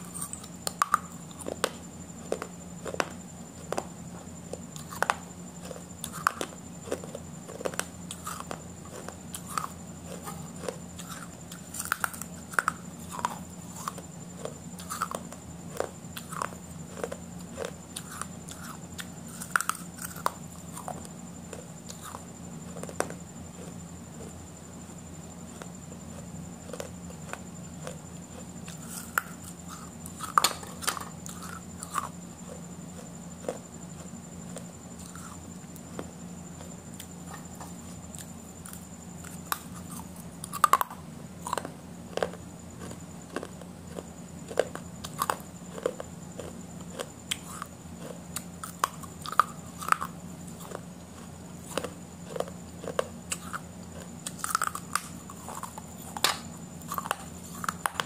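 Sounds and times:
person chewing food: 0.0 - 24.4, 25.5 - 58.0.

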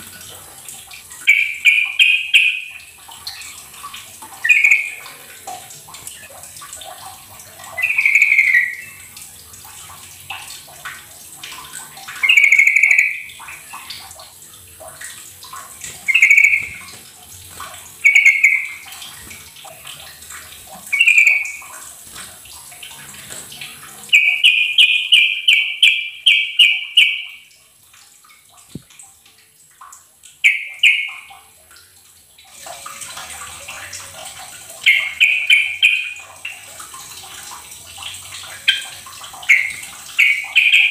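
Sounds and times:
running water trickling: 0.0 - 40.9
bulbul calling in bubbly phrases: 4.4 - 5.3, 38.6 - 40.9.

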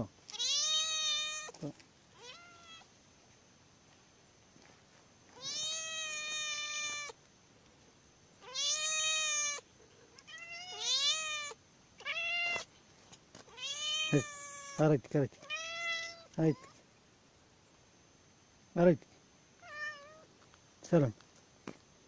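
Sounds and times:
cat meowing: 0.3 - 1.6, 2.2 - 2.9, 5.4 - 7.2, 8.4 - 9.6, 10.2 - 12.7, 13.5 - 14.8, 15.4 - 16.8, 19.6 - 20.3.

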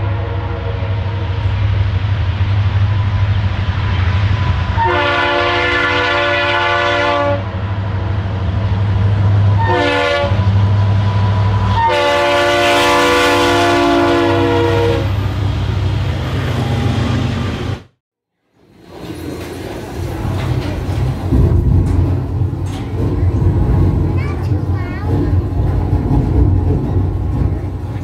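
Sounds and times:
train horn blasts: 0.0 - 1.3, 4.7 - 7.6, 9.6 - 10.5, 11.7 - 15.2
low rumble: 20.5 - 28.0.

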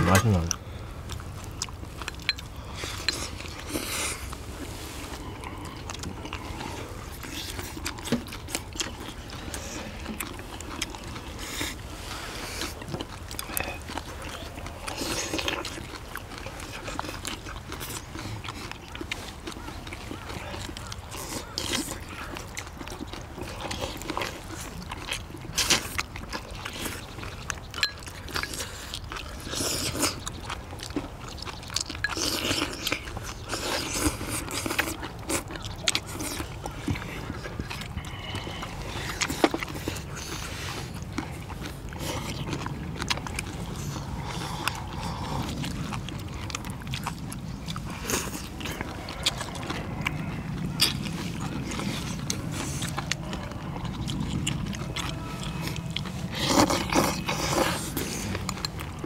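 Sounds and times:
people chewing: 0.0 - 59.0.

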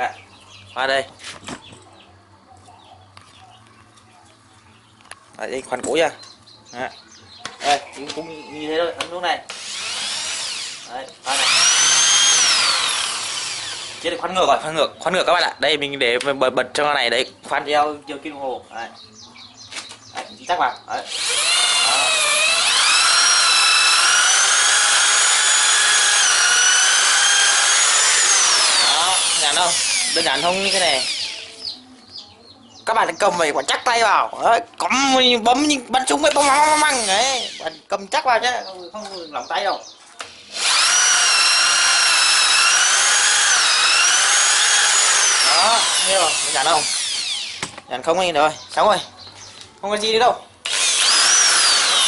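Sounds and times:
drill boring into wood: 9.5 - 14.4, 21.0 - 31.8, 36.4 - 37.8, 40.2 - 47.8, 50.6 - 52.0.

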